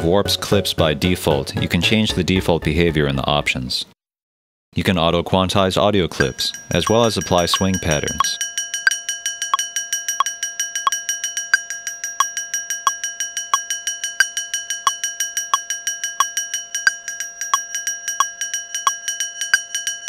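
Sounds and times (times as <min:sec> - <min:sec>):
looped metallic cowbell hits: 0:06.2 - 0:20.0.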